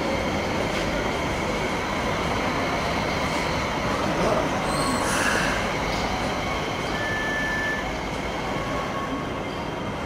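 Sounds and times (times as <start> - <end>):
light rail vehicle running past: 0.0 - 10.0
steel wheels squealing on rail: 3.2 - 10.0.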